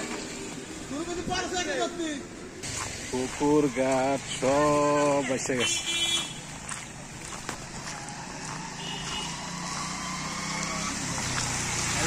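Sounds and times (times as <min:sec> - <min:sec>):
motorcycle engine running: 0:07.2 - 0:12.0.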